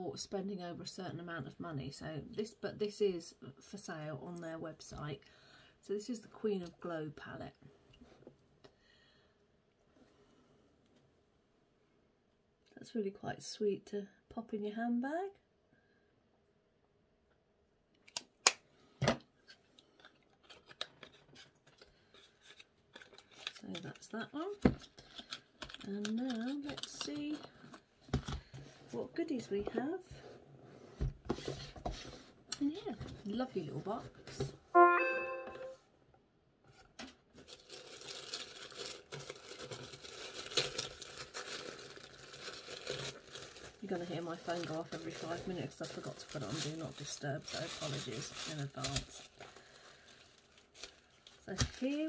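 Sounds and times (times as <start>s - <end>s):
tissue paper rustling: 37.4s - 52.0s.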